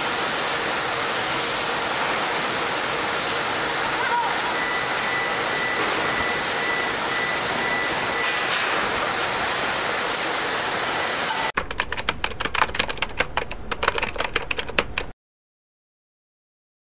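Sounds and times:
machinery rushing noise: 0.0 - 11.6
faint high whistle: 4.0 - 8.4.

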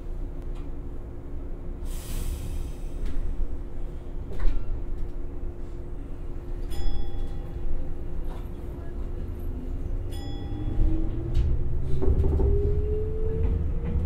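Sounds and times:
train low rumble and hum: 0.0 - 14.0
brake air hiss: 1.8 - 3.3.

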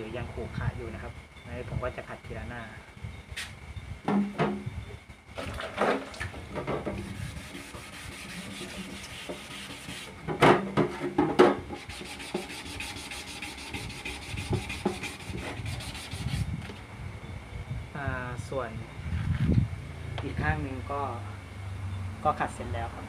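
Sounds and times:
part knocking: 4.1 - 4.7
sandpaper rubbing back and forth: 7.0 - 10.2, 11.7 - 16.6.

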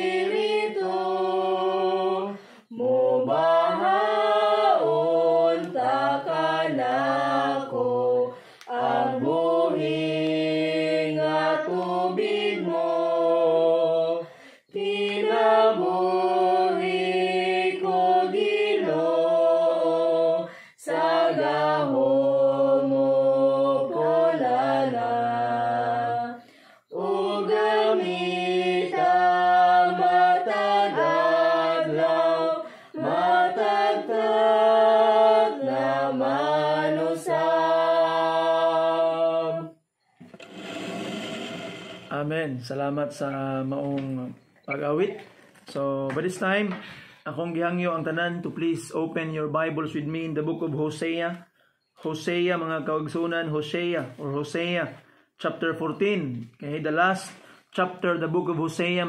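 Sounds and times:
children singing a hymn: 0.0 - 39.8.

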